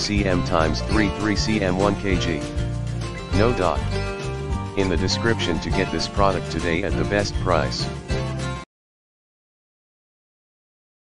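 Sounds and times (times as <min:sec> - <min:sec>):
background music: 0:00.0 - 0:08.7.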